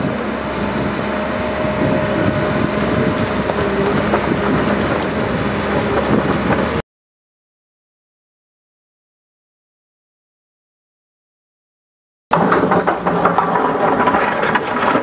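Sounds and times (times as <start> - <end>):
excavator engine and hydraulics: 0.0 - 6.8
knocks of earth and stone: 12.3 - 15.0.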